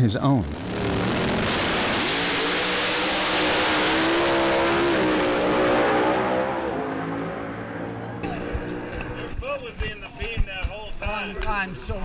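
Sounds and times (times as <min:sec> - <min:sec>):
drag car engine at full throttle: 0:00.4 - 0:09.4.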